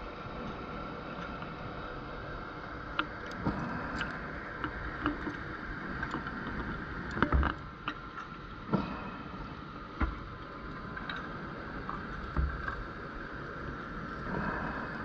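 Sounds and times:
water rushes: 0.0 - 15.0
underwater hiss: 3.4 - 4.4.

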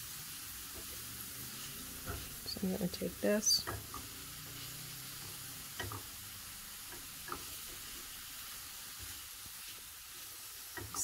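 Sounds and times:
onion sizzling in a skillet: 0.0 - 11.0
spatula knocking against pan: 5.7 - 6.1.

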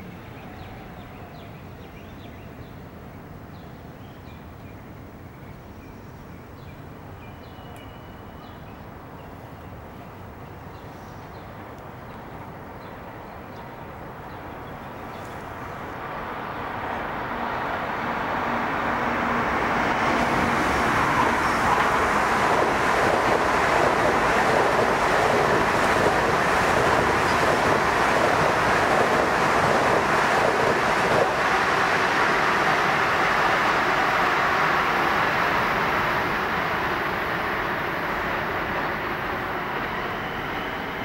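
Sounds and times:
electric train passing: 9.0 - 41.0.

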